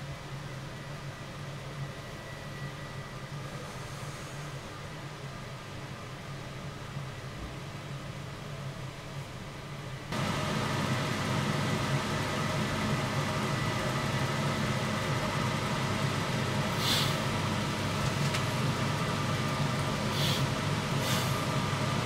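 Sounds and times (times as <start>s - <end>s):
low mechanical rumble: 10.1s - 22.0s
short hiss: 16.7s - 17.2s, 20.1s - 21.4s.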